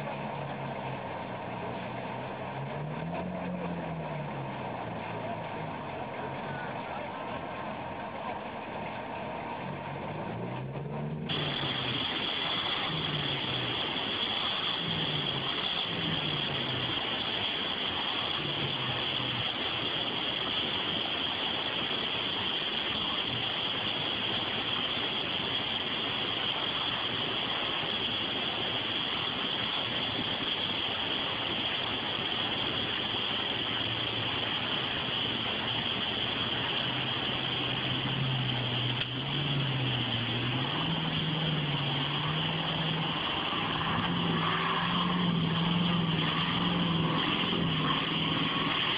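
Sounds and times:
truck engine under load: 0.0 - 48.9
rushing river water: 11.3 - 48.9.

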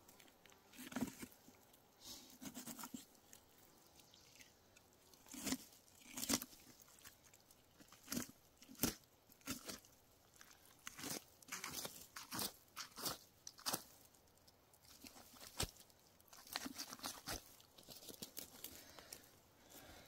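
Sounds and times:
hide crunching and ripping: 0.1 - 1.5, 5.1 - 14.2, 14.8 - 19.3.

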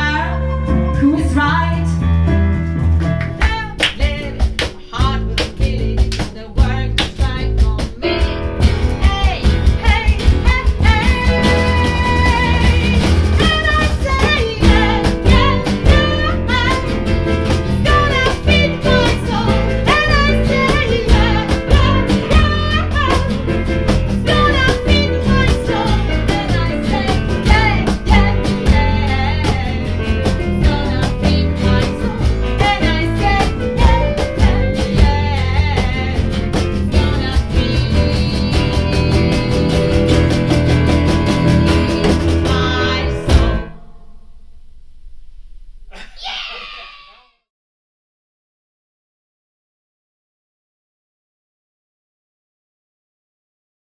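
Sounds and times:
woman singing: 0.0 - 2.0, 3.3 - 43.7
band playing: 0.0 - 45.4
cajon beat: 1.6 - 43.8.

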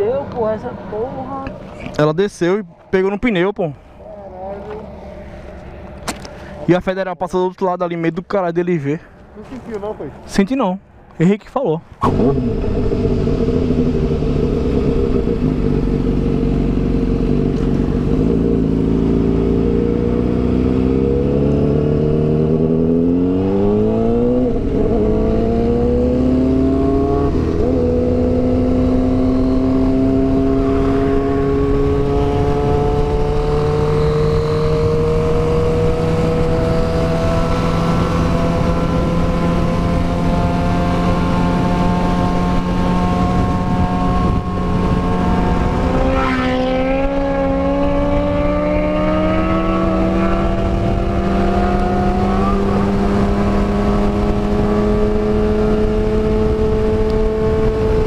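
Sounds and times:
motorcycle engine revving: 12.0 - 58.0.

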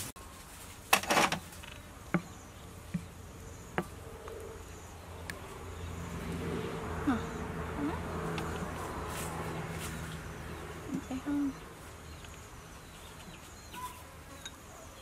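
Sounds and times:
steady low hum: 1.5 - 13.4.

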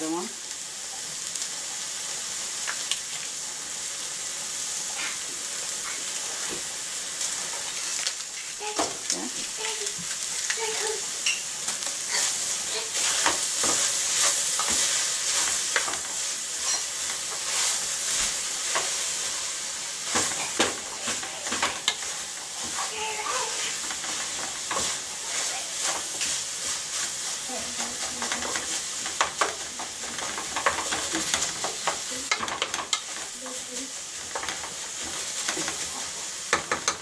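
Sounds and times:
ground meat sizzling in pot: 0.0 - 37.0
spoon scraping and knocking pot: 13.0 - 17.6.

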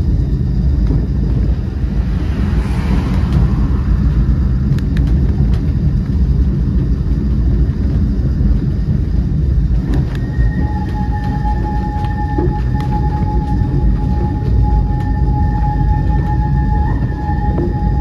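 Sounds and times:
passing van: 0.0 - 9.9
tram rumbling on track: 0.0 - 18.0.

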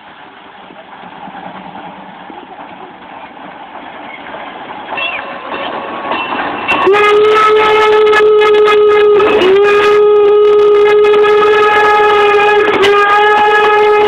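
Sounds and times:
steam locomotive whistle blast: 6.7 - 14.0.

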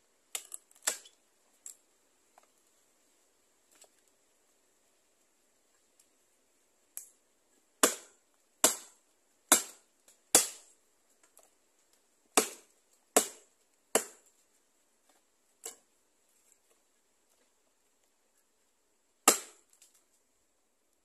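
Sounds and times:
axe chopping rotten wood: 7.8 - 10.6, 12.4 - 14.2, 19.2 - 19.6.

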